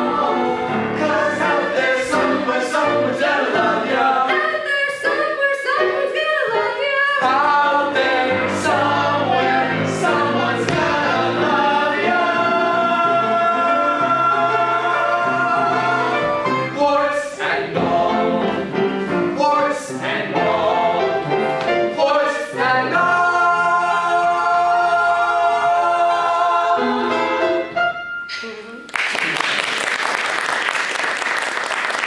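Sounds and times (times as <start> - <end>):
group of voices singing: 0.0 - 27.6.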